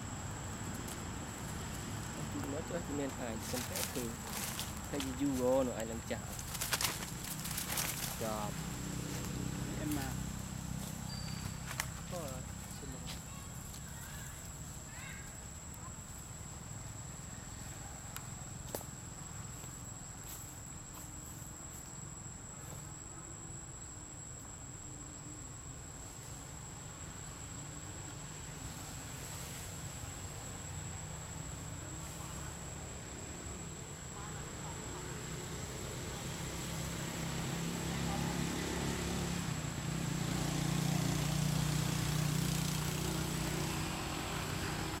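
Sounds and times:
engine humming: 0.0s - 14.7s, 34.6s - 45.0s
insects droning: 0.0s - 45.0s.

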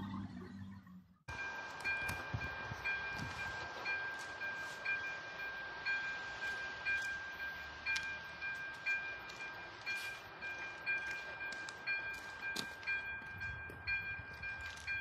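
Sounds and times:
level crossing electronic bell: 1.3s - 15.0s
steady high tone: 1.3s - 15.0s.

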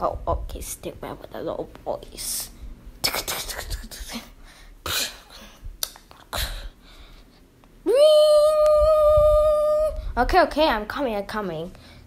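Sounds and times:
person humming a rising note: 7.9s - 10.0s.

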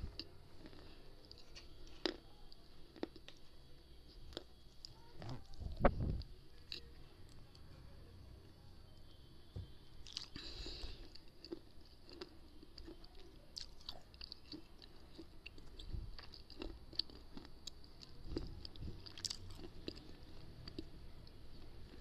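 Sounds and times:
person chewing crunchy pieces: 0.0s - 5.4s, 10.0s - 22.0s.

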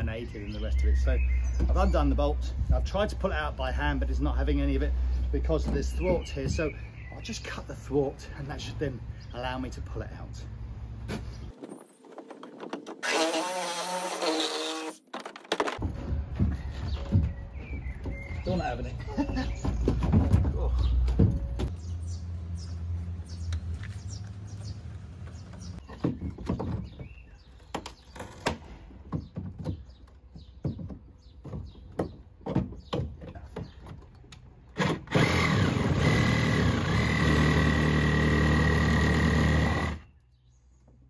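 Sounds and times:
reciprocating saw cutting wood: 12.9s - 15.0s, 34.8s - 40.1s
hand tools knocking on wood: 29.0s - 34.1s.

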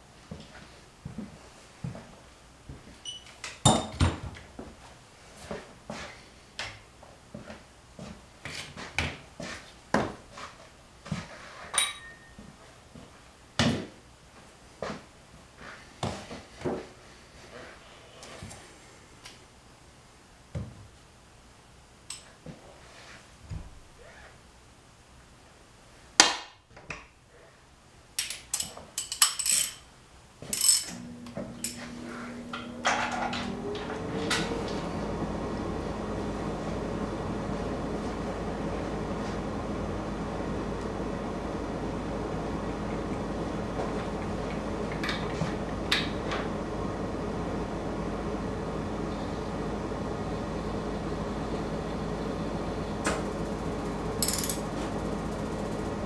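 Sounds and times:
metal tool clinks: 11.8s - 12.4s
ratchet wrench clicking: 54.2s - 54.6s.

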